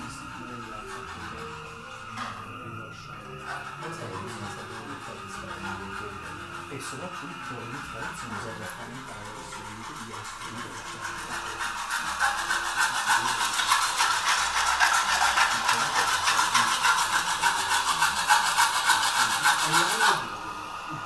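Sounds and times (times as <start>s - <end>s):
hand tool rasping on wood: 0.0s - 20.7s.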